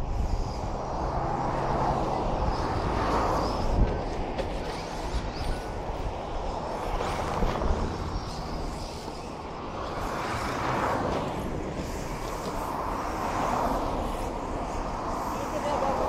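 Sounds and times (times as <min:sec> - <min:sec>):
tyres on dirt: 0:00.8 - 0:16.0
radio-controlled truck motors: 0:01.6 - 0:10.7.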